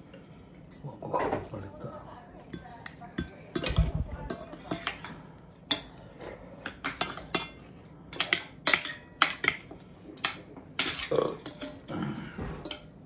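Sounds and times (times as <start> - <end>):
cutlery clinking on plates: 2.5 - 6.0, 6.6 - 13.0.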